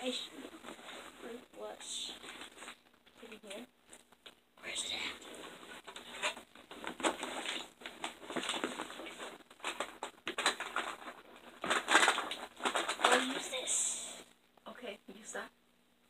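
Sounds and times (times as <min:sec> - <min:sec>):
rustling of makeup bag: 0:05.2 - 0:13.6.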